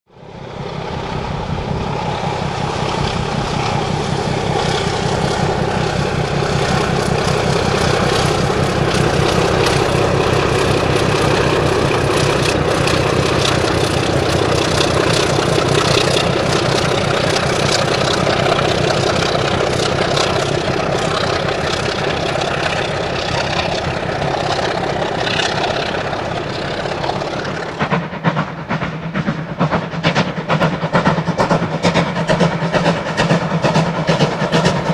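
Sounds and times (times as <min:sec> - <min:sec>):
diesel locomotive engine: 0:00.1 - 0:34.9
steam locomotive rapid pulsing: 0:00.2 - 0:34.9
wheels clattering over rails: 0:03.0 - 0:28.5.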